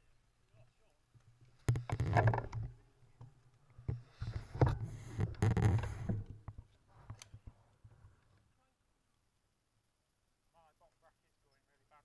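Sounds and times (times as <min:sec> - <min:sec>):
clicks and knocks from bumps: 0:01.2 - 0:08.3.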